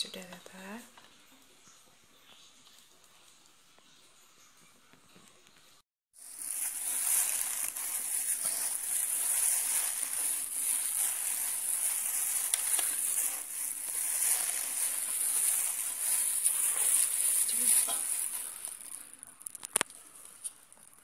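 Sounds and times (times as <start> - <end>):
hand rubbing crumbly dough: 6.2 - 21.0.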